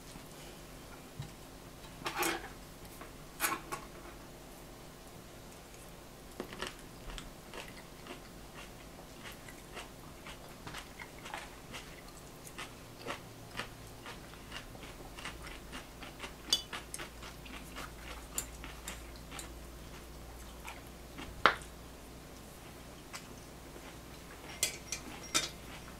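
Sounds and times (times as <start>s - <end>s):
chewing: 6.5s - 21.7s.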